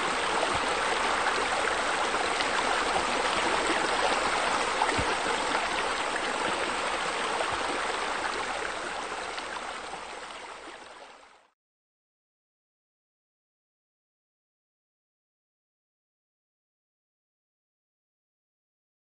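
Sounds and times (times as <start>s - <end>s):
running water rushing: 0.0s - 11.5s.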